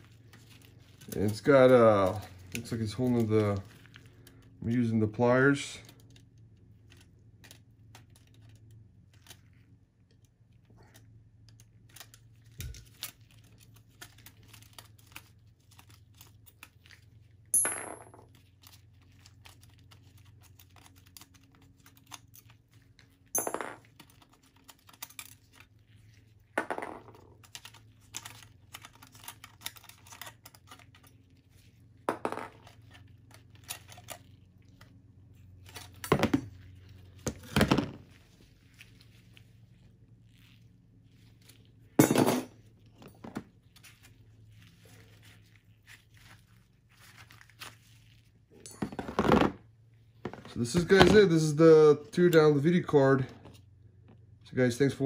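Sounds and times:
metal parts knocking and clinking: 23.3 - 24.2, 35.7 - 36.5, 42.0 - 43.4, 48.6 - 49.4.

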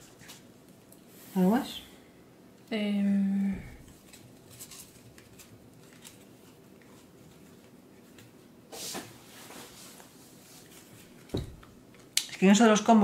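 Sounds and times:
playing cards rustling: 3.8 - 8.4.

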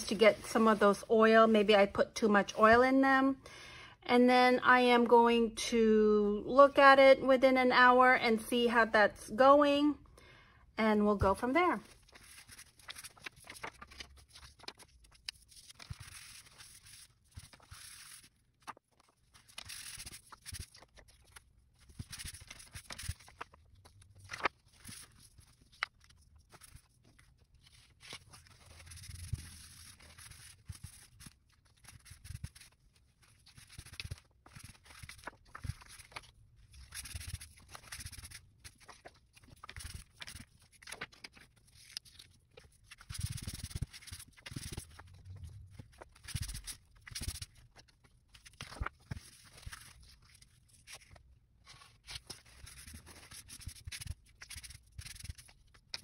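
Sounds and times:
paper rustling: 11.8 - 56.0.

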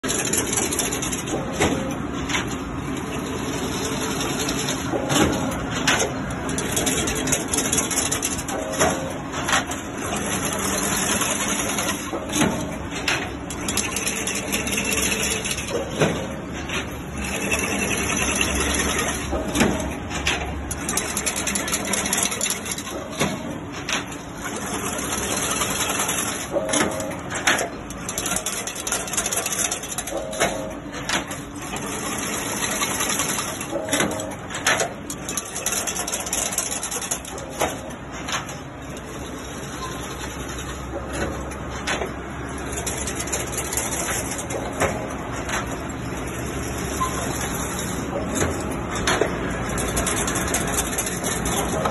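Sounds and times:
fence weaving machine whirring: 0.0 - 51.9
sharp mechanical clacks: 0.0 - 51.9
short machine tone: 46.9 - 47.5.

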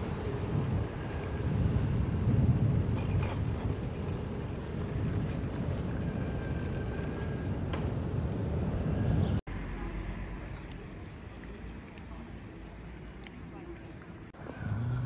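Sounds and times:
wind rumbling on microphone: 0.0 - 9.4
outdoor ambience: 0.0 - 15.0.

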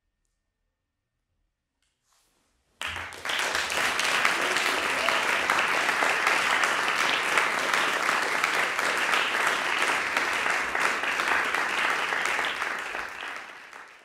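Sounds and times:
audience applauding: 2.8 - 14.0.

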